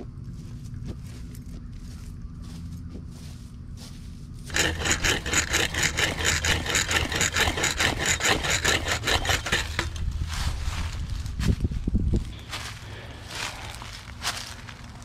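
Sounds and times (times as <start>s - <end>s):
hands scraping branches and fence wire: 4.5s - 11.1s.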